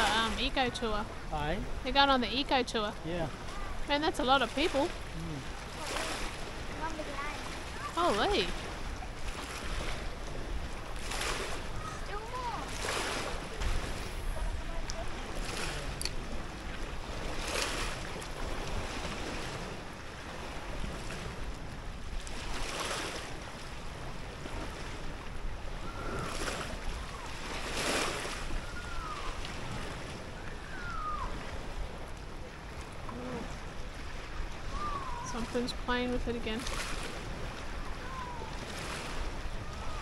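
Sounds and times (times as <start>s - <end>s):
rushing water: 0.0s - 40.0s
rushing wind: 0.0s - 40.0s
faint falling whistles: 25.8s - 27.3s, 28.6s - 29.4s, 30.4s - 31.4s, 34.7s - 35.4s.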